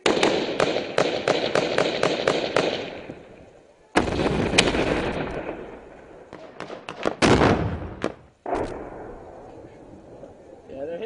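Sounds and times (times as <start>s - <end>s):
gunshots: 0.0s - 3.3s, 4.0s - 9.4s
loud blast with echo: 4.0s - 9.8s.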